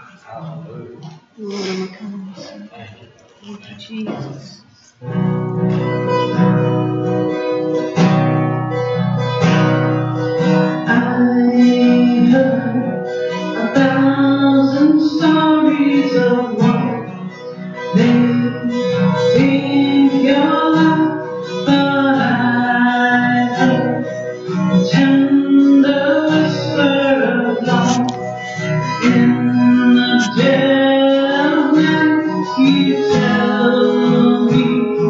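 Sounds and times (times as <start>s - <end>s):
acoustic guitar strumming: 4.1s - 35.0s
person singing: 10.6s - 35.0s.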